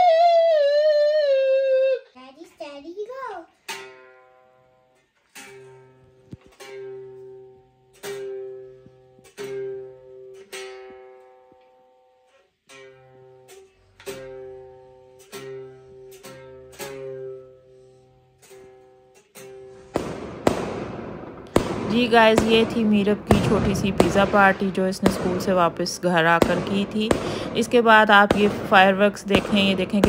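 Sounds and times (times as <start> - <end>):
toy guitar strummed: 3.5 - 19.9.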